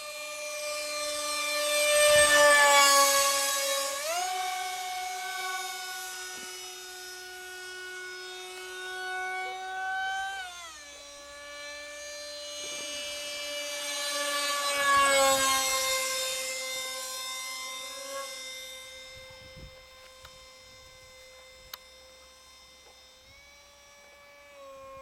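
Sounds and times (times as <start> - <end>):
model jet motor whining: 0.0 - 25.0.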